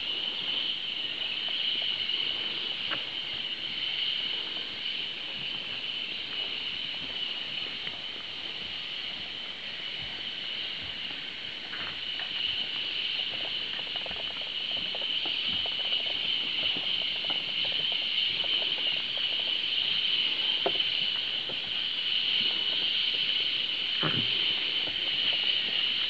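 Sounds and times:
high-pitched insect drone: 0.0 - 26.0
footsteps on boardwalk: 4.7 - 21.9.

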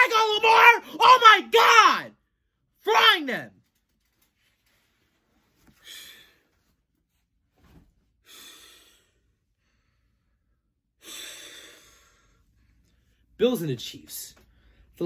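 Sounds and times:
man breathing out: 5.7 - 6.6, 8.2 - 10.4, 11.0 - 12.5.

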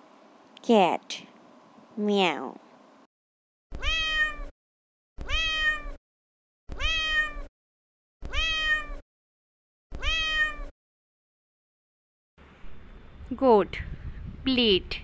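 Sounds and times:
cat meowing: 3.7 - 4.5, 5.2 - 6.0, 6.7 - 7.5, 8.2 - 9.0, 9.9 - 10.7.

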